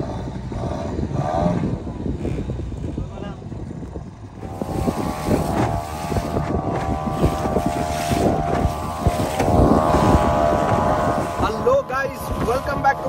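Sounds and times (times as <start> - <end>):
boat engine running: 0.0 - 13.0
wind buffeting microphone: 0.0 - 13.0
water splashing against hull: 3.7 - 13.0.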